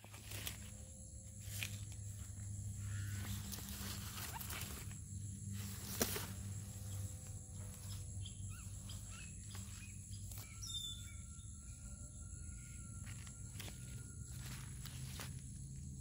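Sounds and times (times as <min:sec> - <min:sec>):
insects trilling: 0:00.0 - 0:16.0
bird chirps: 0:06.8 - 0:14.5.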